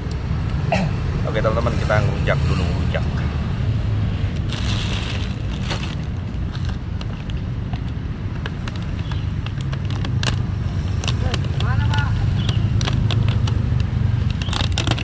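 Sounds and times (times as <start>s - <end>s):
street traffic rumble: 0.0s - 15.0s
plastic bag crinkling: 4.4s - 6.7s, 14.2s - 15.0s.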